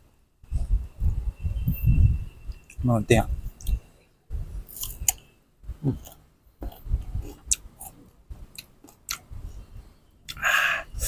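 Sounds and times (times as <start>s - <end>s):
chewing crunchy mango: 4.7s - 5.2s, 5.8s - 9.3s
wet mouth noises: 5.8s - 9.3s.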